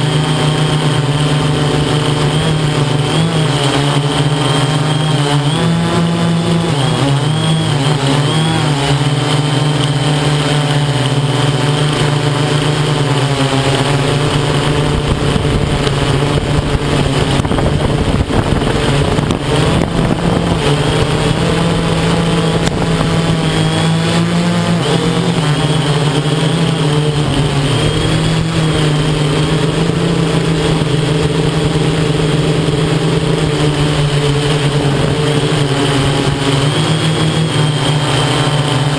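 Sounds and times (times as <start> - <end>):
drone motors buzzing: 0.0 - 38.9.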